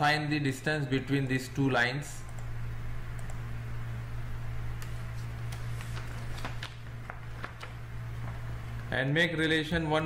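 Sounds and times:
steady low hum: 0.0s - 10.0s
computer mouse clicks: 2.2s - 2.5s, 3.1s - 3.4s.

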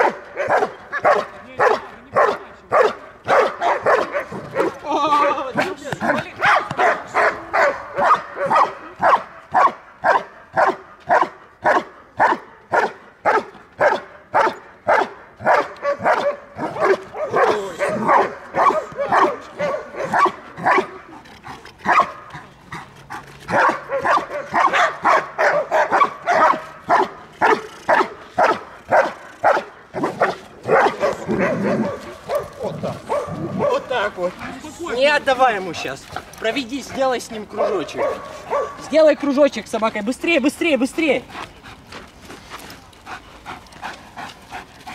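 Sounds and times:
dog barking rapidly: 0.0s - 4.8s, 6.0s - 20.9s, 21.9s - 22.2s, 23.5s - 34.0s, 37.4s - 39.0s.

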